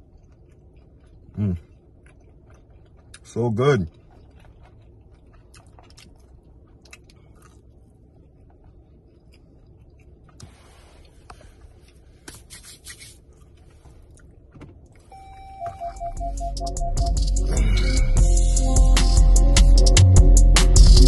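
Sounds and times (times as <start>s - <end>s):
person chewing food: 0.0s - 19.3s
low car cabin hum: 13.2s - 18.8s.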